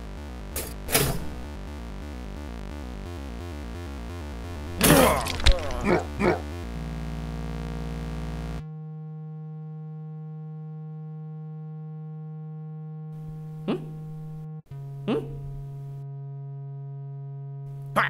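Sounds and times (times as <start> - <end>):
buzzy synthesized electronic tone: 1.4 - 4.8, 5.5 - 17.8.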